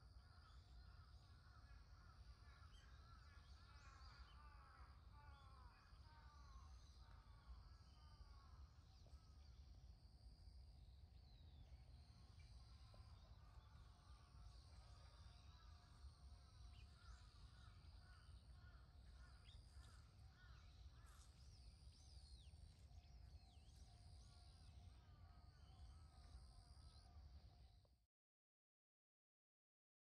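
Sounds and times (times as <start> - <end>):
faint birds calling: 0.0 - 27.8
faint high hum: 0.0 - 28.0.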